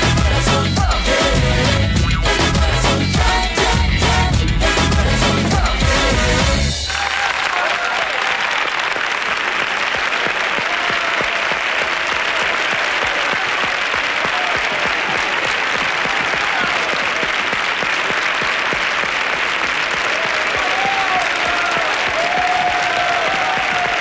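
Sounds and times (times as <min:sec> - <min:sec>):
audience cheering: 0:06.7 - 0:24.0
audience applauding: 0:06.8 - 0:24.0.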